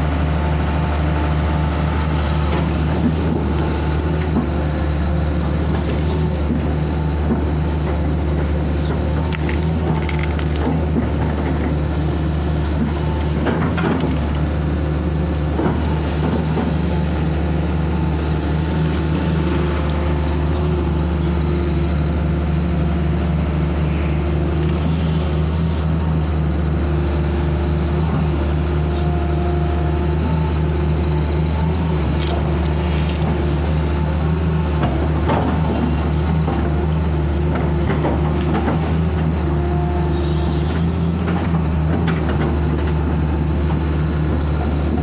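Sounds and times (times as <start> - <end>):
excavator diesel engine running: 0.0 - 45.0.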